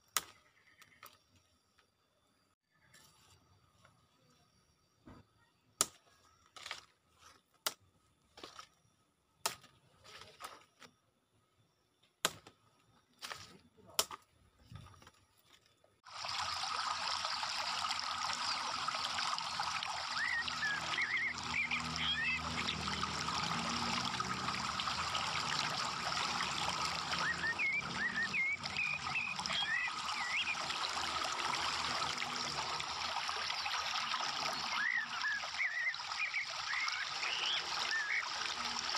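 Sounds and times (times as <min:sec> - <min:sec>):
faint chirps: 0:00.3 - 0:06.6, 0:33.2 - 0:38.8.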